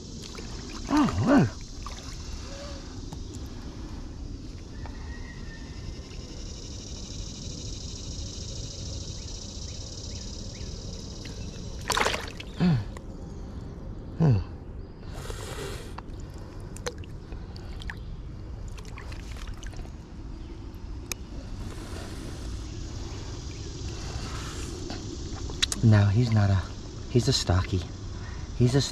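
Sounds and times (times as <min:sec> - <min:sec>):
water sloshing around a net: 0:00.2 - 0:02.5, 0:11.8 - 0:12.6, 0:18.6 - 0:20.0.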